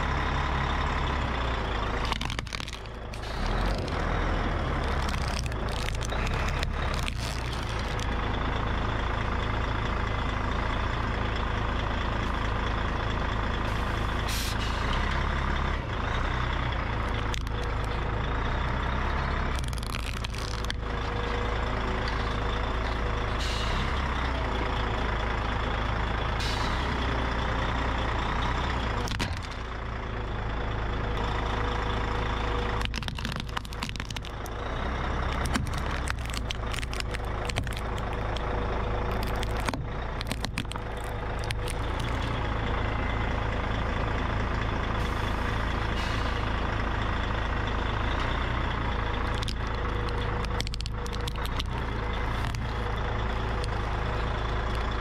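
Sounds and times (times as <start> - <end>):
heavy vehicle engine running: 0.0 - 55.0
plastic toys cracking under tyre: 1.9 - 8.2, 17.0 - 18.0, 19.4 - 21.2, 28.9 - 29.7, 32.6 - 42.5, 49.2 - 53.8.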